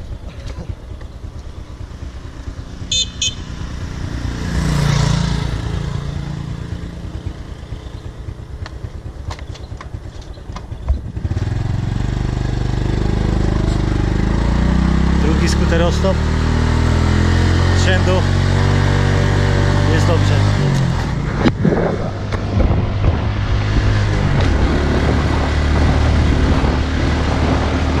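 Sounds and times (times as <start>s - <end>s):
motor scooter engine running: 0.0s - 15.2s
scooter horn toots: 2.8s - 3.6s.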